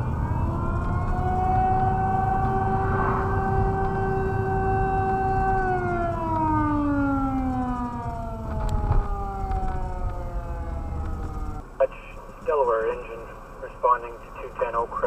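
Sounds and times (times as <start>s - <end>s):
mechanical fire siren: 0.0s - 11.6s
low vehicle rumble: 0.0s - 15.0s.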